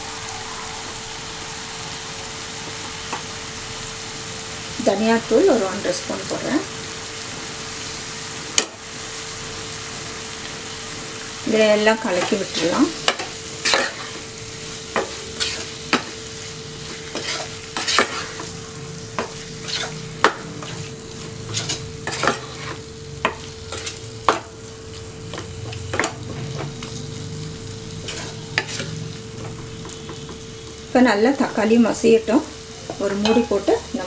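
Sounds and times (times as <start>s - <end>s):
frying sizzle: 0.0s - 34.0s
spatula scraping and tapping pan: 15.0s - 16.2s, 16.9s - 18.5s, 19.2s - 24.5s, 28.0s - 30.4s, 32.9s - 33.6s.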